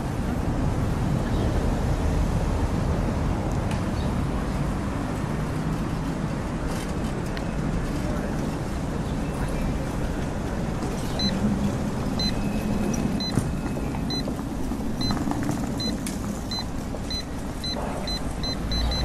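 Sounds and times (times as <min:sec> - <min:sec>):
street traffic noise: 0:00.0 - 0:19.0
short high electronic beeps: 0:12.2 - 0:12.6, 0:15.8 - 0:19.0.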